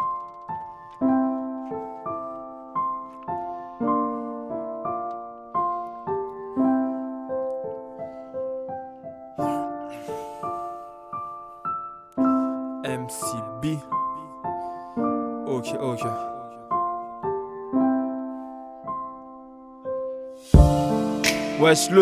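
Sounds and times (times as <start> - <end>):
keyboard chords in rap beat: 12.7 - 14.4, 20.5 - 22.0.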